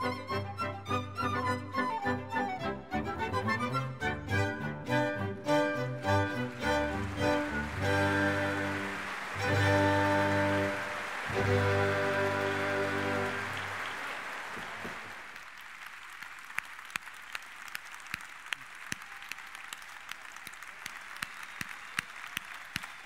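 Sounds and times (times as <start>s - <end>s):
audience applause: 6.0s - 23.0s.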